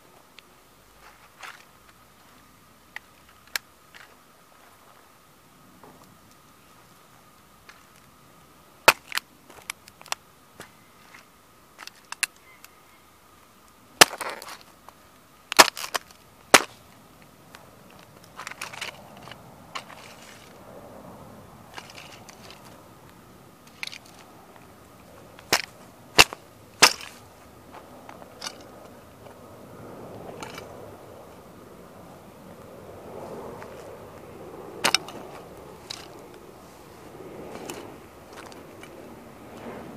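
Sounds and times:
toy car cracking under stomps: 0:08.8 - 0:10.2, 0:14.0 - 0:14.7, 0:15.5 - 0:16.8, 0:25.4 - 0:27.2, 0:34.8 - 0:35.2
soft crunching in dirt: 0:14.2 - 0:20.8, 0:21.7 - 0:31.5, 0:32.5 - 0:39.9.

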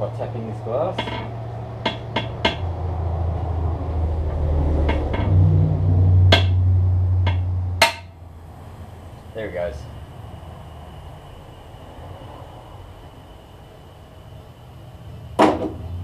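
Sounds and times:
steady low hum: 0:00.0 - 0:16.0
hard tool tapping on glass: 0:01.0 - 0:02.6, 0:06.3 - 0:06.6, 0:07.3 - 0:08.1.

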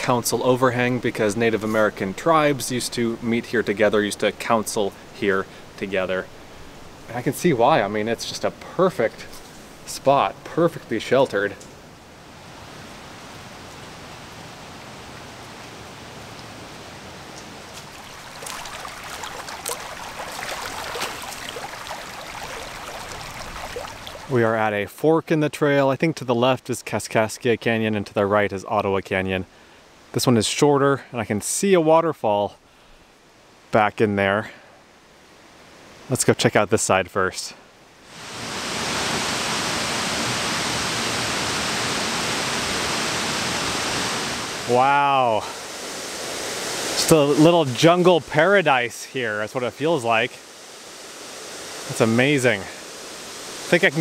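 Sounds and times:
running water rushing: 0:00.0 - 0:24.6, 0:37.9 - 0:54.0.

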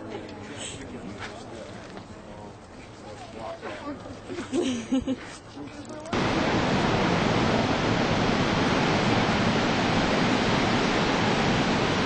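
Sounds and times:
waterfall rushing: 0:06.2 - 0:12.0.

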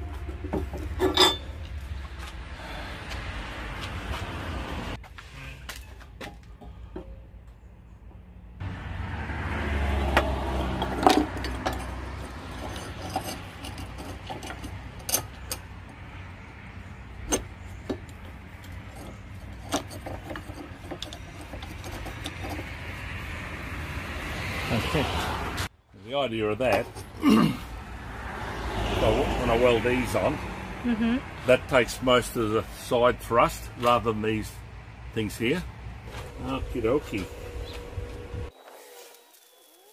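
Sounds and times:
metallic clinks of steel parts: 0:01.0 - 0:01.6
steady low rumble: 0:33.6 - 0:38.5.

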